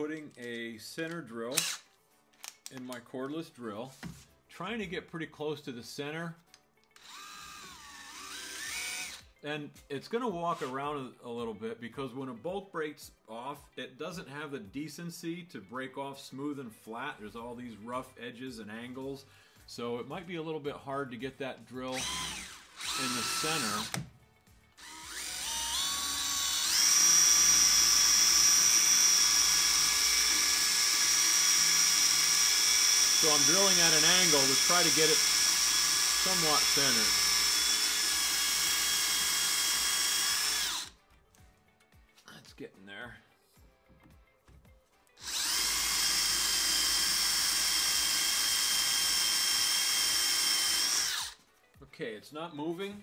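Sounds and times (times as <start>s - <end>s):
cordless drill whining: 1.5s - 1.8s, 7.0s - 9.3s, 10.5s - 10.8s, 21.9s - 24.1s, 24.8s - 41.0s, 45.2s - 51.4s.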